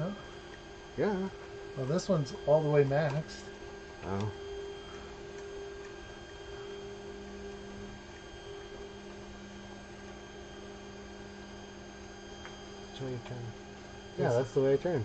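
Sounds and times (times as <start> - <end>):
thin high whine: 0.0 - 15.0
three d printer electrical hum: 0.0 - 15.0.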